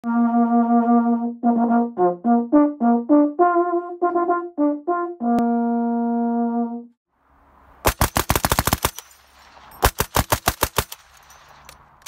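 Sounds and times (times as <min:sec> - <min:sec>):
brass instrument playing: 0:00.0 - 0:07.0.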